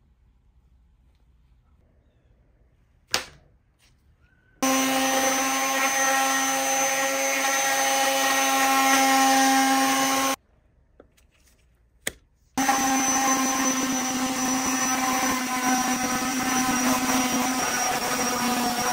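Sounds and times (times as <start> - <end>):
palm sander running: 4.6 - 10.4, 12.6 - 18.9.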